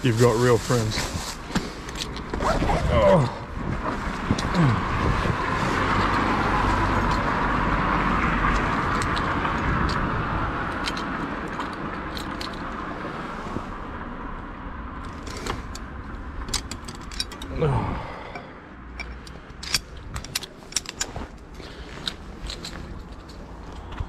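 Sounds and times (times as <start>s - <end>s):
vehicle passing on street: 0.0s - 24.0s
metallic clicks and jingles: 8.5s - 12.8s, 15.0s - 17.6s, 18.3s - 24.0s.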